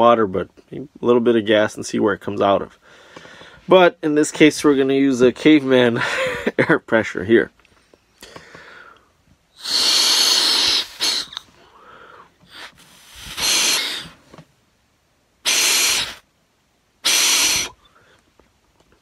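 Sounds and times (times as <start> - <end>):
breath hissing through valve: 8.2 - 14.2, 15.4 - 16.3, 17.0 - 18.2.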